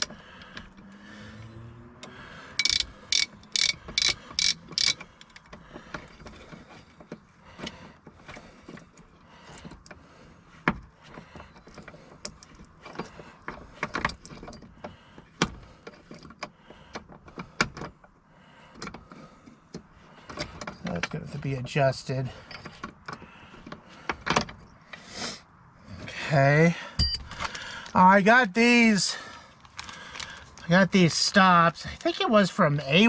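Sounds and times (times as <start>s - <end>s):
socket ratchet clicking: 2.6s - 5.4s
metal parts clicking and tapping: 2.6s - 7.2s.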